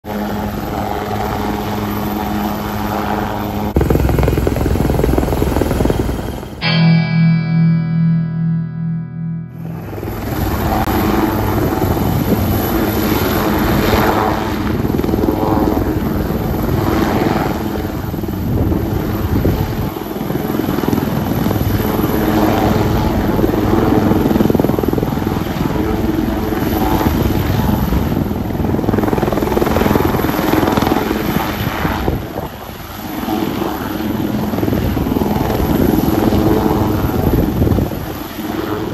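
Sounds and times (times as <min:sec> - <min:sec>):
helicopter rotor beats overhead: 0:00.0 - 0:07.5, 0:09.5 - 0:38.9
helicopter engine whine: 0:00.1 - 0:07.6, 0:08.6 - 0:38.9
turbine noise: 0:03.7 - 0:12.4.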